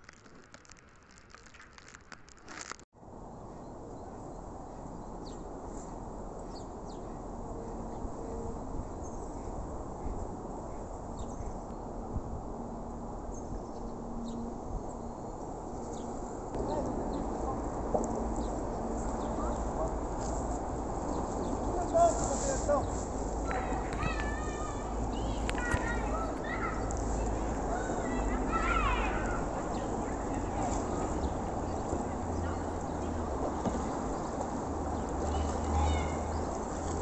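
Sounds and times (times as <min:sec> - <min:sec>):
dense crackling: 0:00.0 - 0:02.9
river rushing: 0:23.3 - 0:37.0.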